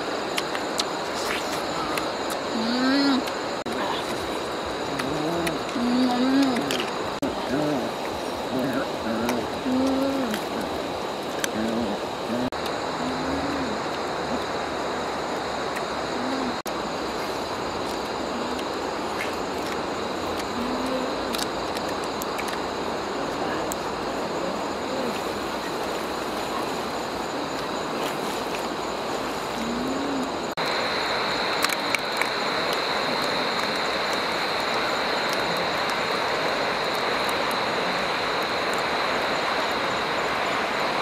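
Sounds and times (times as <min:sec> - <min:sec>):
broad steady hiss: 0:00.0 - 0:41.0
night insects droning: 0:00.0 - 0:41.0
sharp crackles: 0:15.6 - 0:23.9.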